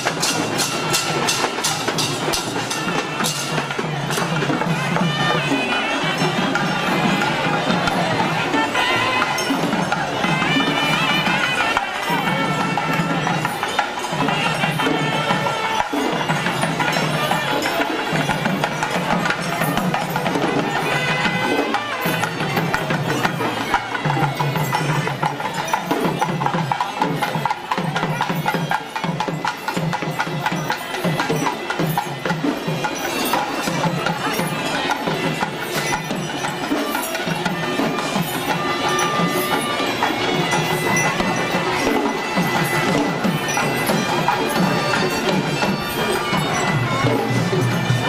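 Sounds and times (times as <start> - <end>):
drums in rapid rhythms: 0.0 - 48.0
high wind instrument: 0.0 - 48.0.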